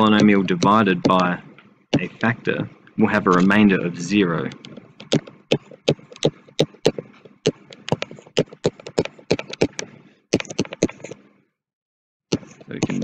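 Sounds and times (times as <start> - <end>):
stylus tapping on tablet: 0.0 - 2.1, 4.5 - 11.2.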